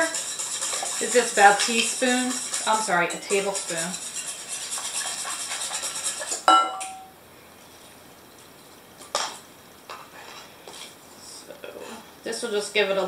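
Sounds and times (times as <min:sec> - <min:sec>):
whisk clinking against bowl: 0:00.0 - 0:07.0.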